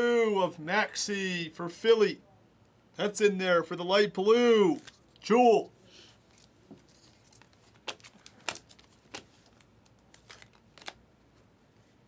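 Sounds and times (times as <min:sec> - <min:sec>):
trading cards rustling: 0:06.2 - 0:11.0.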